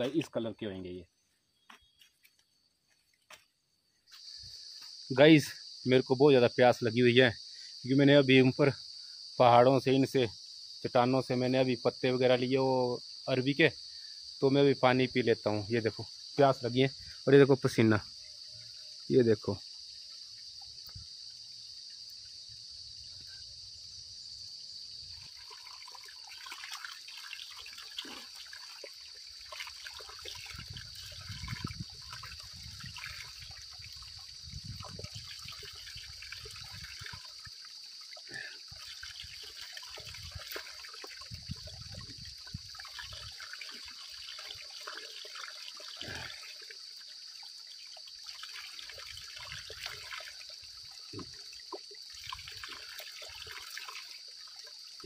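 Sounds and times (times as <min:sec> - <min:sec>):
high insect buzz: 0:00.0 - 0:55.0
water trickling between rocks: 0:24.9 - 0:55.0
water splashing in hands: 0:38.2 - 0:46.7.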